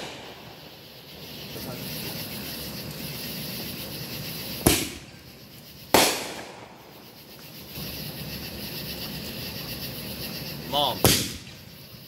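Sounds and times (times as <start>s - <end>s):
firework bangs with echo: 0.0s - 2.3s, 4.3s - 5.3s, 5.9s - 7.1s, 10.9s - 11.7s.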